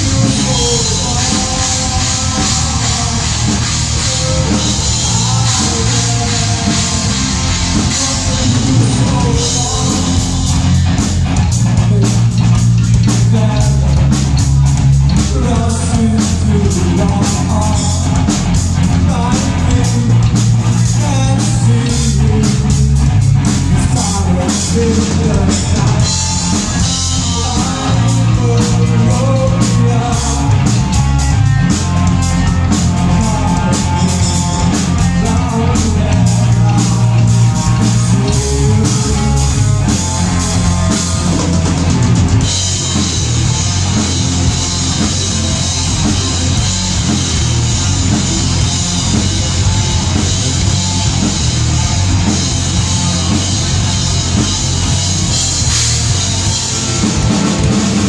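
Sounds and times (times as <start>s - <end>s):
person singing into microphone: 0.0s - 10.7s, 15.1s - 22.9s, 23.7s - 31.3s, 32.4s - 42.0s
bass guitar: 0.0s - 58.0s
distorted electric guitars: 0.0s - 58.0s
fast drumming: 0.0s - 58.0s.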